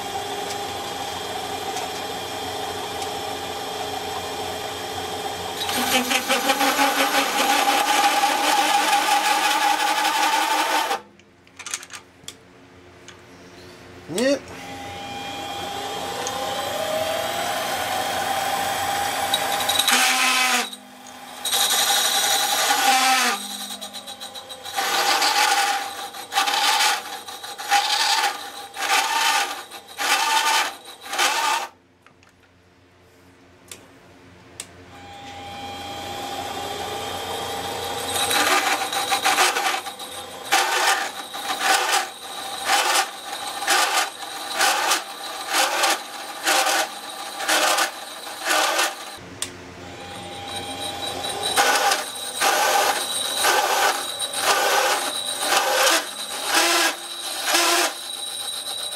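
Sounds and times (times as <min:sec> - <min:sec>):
lathe motor whining: 0:00.0 - 0:11.0, 0:14.5 - 0:31.7, 0:35.4 - 0:49.2, 0:49.8 - 0:58.9
hole saw screeching on metal: 0:05.6 - 0:11.0, 0:18.6 - 0:31.7, 0:37.4 - 0:49.2, 0:50.0 - 0:58.9.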